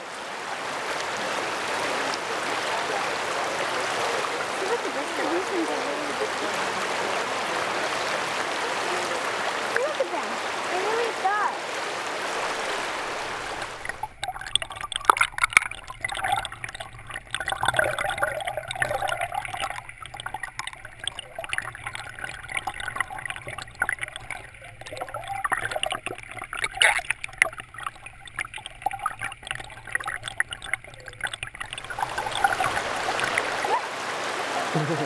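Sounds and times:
underwater river gurgling: 0.0 - 35.0
small ticks and knocks: 13.3 - 33.6.

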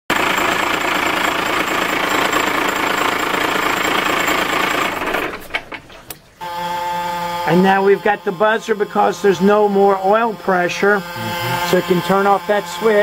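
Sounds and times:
diesel engine running: 0.1 - 5.6
engine winding down and knocking: 0.1 - 5.9.

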